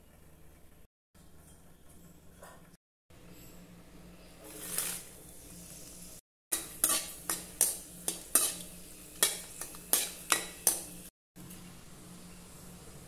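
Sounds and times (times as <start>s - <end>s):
steel spoon scraping metal pan: 6.5s - 11.0s.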